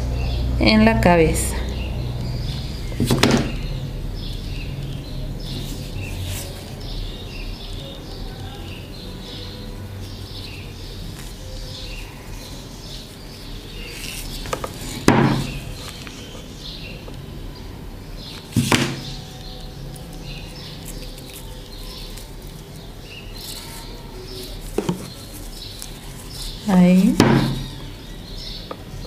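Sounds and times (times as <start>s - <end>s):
sharp knocks on a table: 27.2s - 27.7s.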